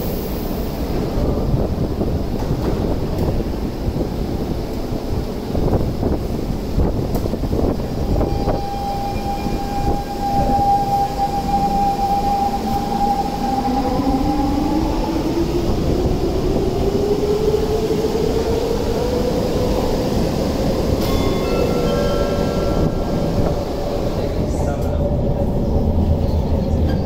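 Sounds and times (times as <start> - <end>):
low rumble of train cars: 0.0 - 27.0
whine climbing in pitch: 8.2 - 15.6.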